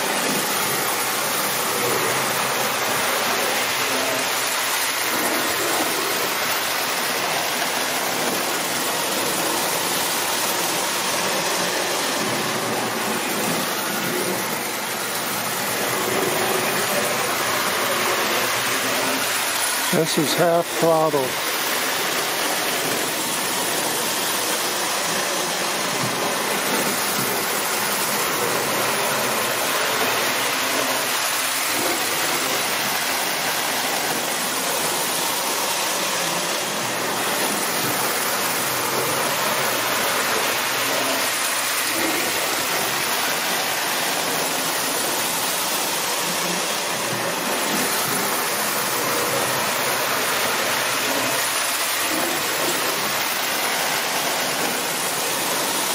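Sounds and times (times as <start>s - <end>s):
toy trains rumbling on track: 0.0s - 55.9s.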